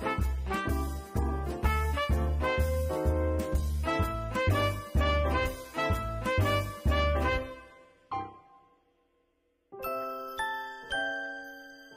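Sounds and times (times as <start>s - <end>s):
upbeat music with bouncing bass: 0.0s - 7.7s.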